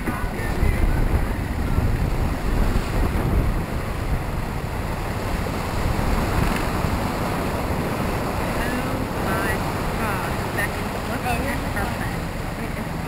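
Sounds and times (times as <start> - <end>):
wind noise on microphone: 0.0 - 11.0
waves rushing along boat hull: 0.0 - 13.0.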